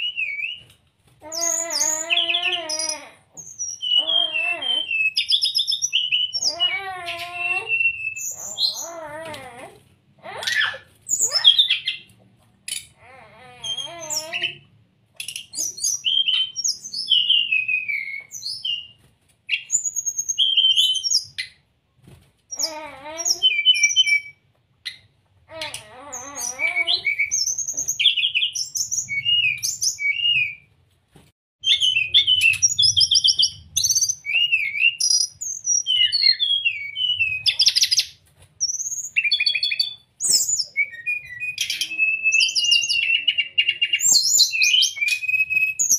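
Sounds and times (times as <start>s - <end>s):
lower warbled bird phrases: 1.2s - 9.4s
bird singing high whistles: 3.4s - 8.9s, 31.7s - 45.9s.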